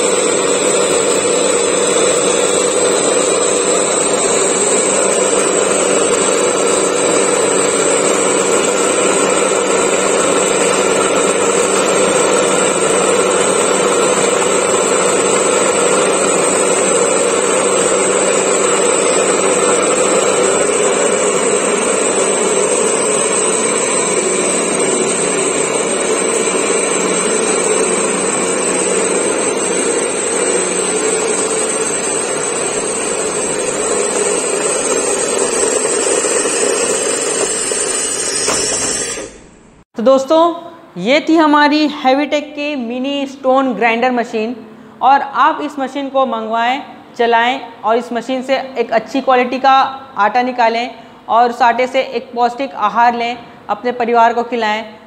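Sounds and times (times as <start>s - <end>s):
stone grinder mill humming: 0.0s - 39.8s.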